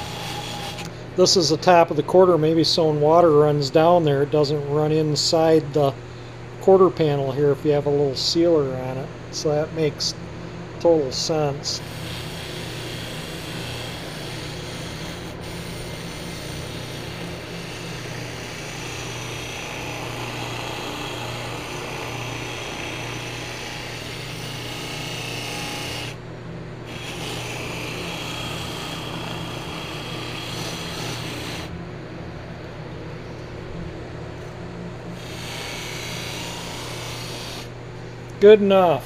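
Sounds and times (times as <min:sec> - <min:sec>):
buffer motor hum: 0:00.0 - 0:39.0
metal hissing on polishing wheel: 0:11.7 - 0:18.3.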